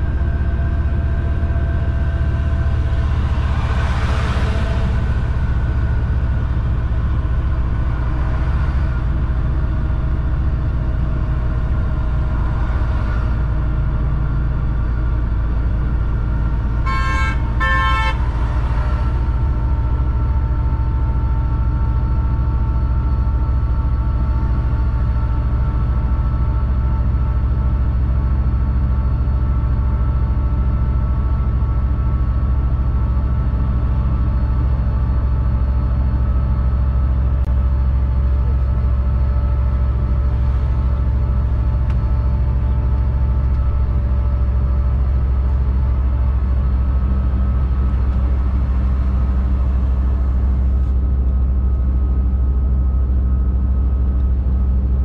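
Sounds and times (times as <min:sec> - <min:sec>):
truck engine running: 0:00.0 - 0:55.0
truck horn toots: 0:16.7 - 0:19.1.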